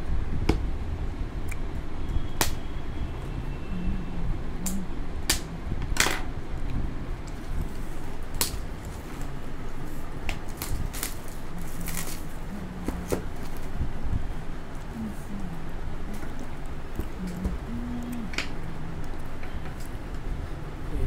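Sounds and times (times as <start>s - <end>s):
plastic wrap crackling and tearing: 10.3s - 13.7s.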